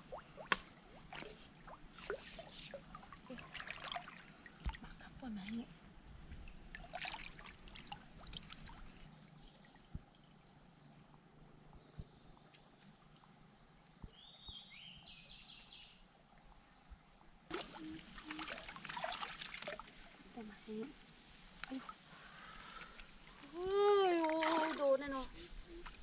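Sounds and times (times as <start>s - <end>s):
legs wading through water: 0.0s - 10.2s, 17.5s - 26.0s
stream water splashing: 0.0s - 10.2s, 17.5s - 26.0s
pole jabbing into submerged branches: 0.1s - 2.9s.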